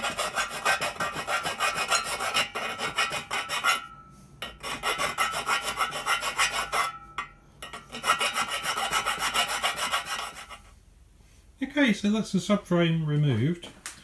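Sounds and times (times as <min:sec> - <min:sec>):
hand file rasping on metal: 0:00.0 - 0:07.0, 0:07.6 - 0:10.8.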